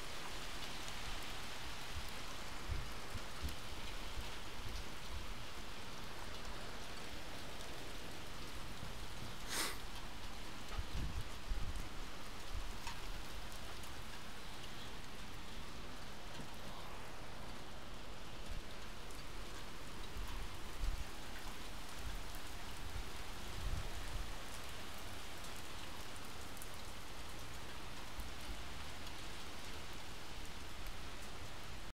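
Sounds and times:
hail and rain pattering: 0:00.0 - 0:31.9.

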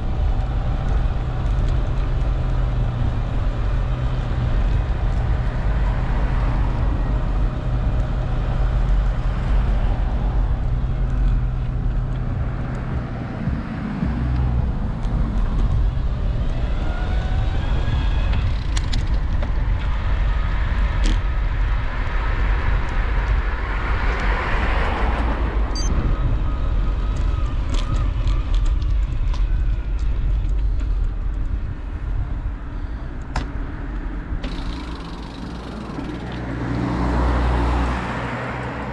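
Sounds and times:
cars passing: 0:00.0 - 0:38.9
wind noise on microphone: 0:00.0 - 0:38.9
sharp clicks and rattles: 0:34.4 - 0:36.6.

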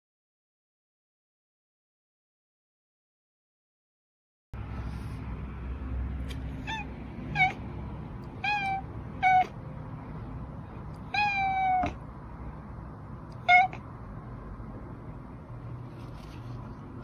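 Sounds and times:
cat meowing: 0:06.4 - 0:07.6, 0:08.2 - 0:09.6, 0:11.0 - 0:12.0, 0:13.3 - 0:13.8.

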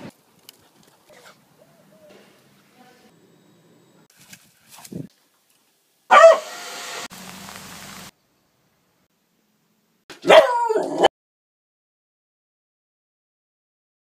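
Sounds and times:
dog barking: 0:06.1 - 0:06.5, 0:10.2 - 0:11.1.

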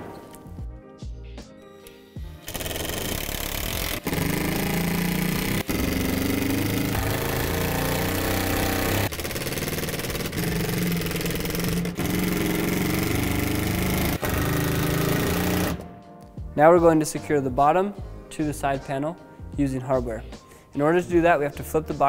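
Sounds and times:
impact driver driving screws: 0:01.8 - 0:15.8.

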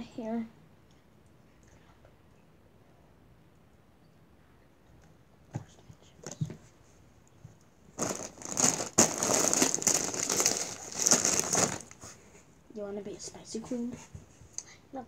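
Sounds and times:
plastic wrapping crinkling: 0:08.0 - 0:12.1.

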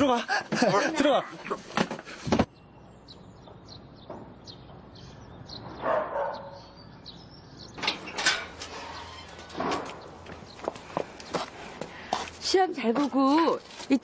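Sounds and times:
small birds chirping: 0:00.0 - 0:14.0
dog barking: 0:05.8 - 0:06.7.

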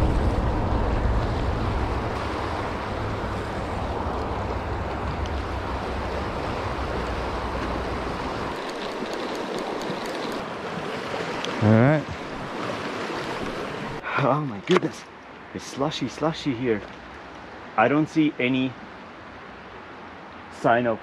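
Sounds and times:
wind rumble on microphone: 0:00.0 - 0:09.3
river rushing over rocks: 0:00.0 - 0:14.1.

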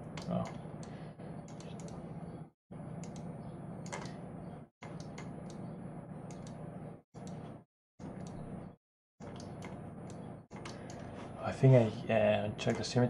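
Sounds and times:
low electrical hum: 0:00.0 - 0:13.0
keyboard and mouse clicks: 0:00.1 - 0:02.0, 0:03.0 - 0:04.2, 0:04.8 - 0:06.6, 0:07.2 - 0:08.4, 0:09.2 - 0:11.1.

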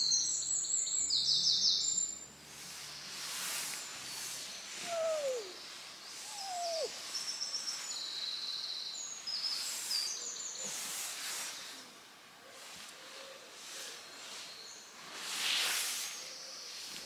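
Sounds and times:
songbirds trilling and warbling: 0:00.0 - 0:11.8
short falling bird calls: 0:04.7 - 0:07.0.

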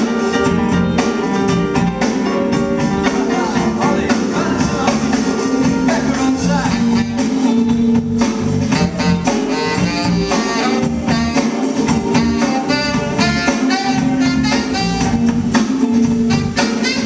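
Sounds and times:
live band playing: 0:00.0 - 0:17.0
saxophone melody: 0:06.6 - 0:08.0, 0:08.6 - 0:17.0.

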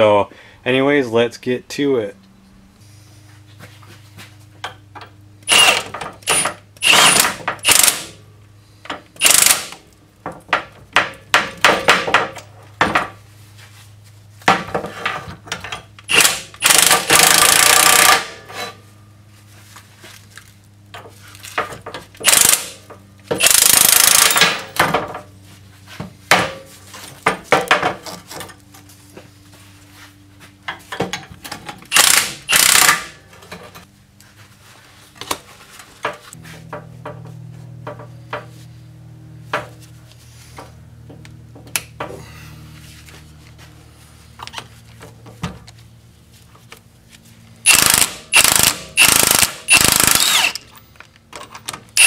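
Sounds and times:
impact wrench hammering: 0:05.5 - 0:08.2, 0:09.2 - 0:09.8, 0:10.5 - 0:12.4, 0:16.1 - 0:18.4, 0:22.2 - 0:25.0, 0:31.9 - 0:33.2, 0:47.7 - 0:50.6.

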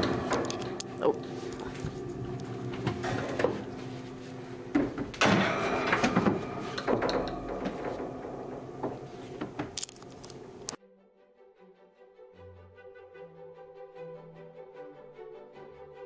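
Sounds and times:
knocking and rattling: 0:00.0 - 0:10.8
steady hum: 0:00.0 - 0:10.8.

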